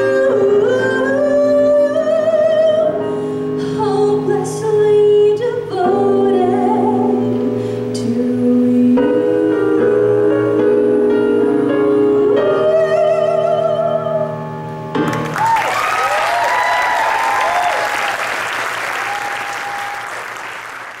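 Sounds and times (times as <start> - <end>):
woman singing with vibrato: 0.0 - 14.8
piano chords: 0.0 - 20.4
audience applause: 15.0 - 21.0
audience cheering and whooping: 15.2 - 21.0.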